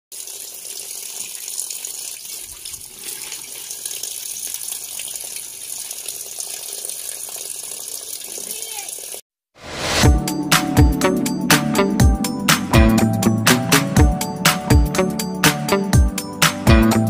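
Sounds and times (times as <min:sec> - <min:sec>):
tap water pouring into metal pot: 0:00.1 - 0:09.2.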